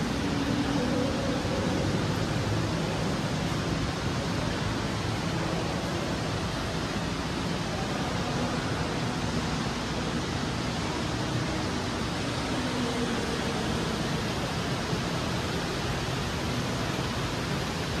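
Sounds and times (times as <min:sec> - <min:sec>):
water rushing: 0:00.0 - 0:18.0.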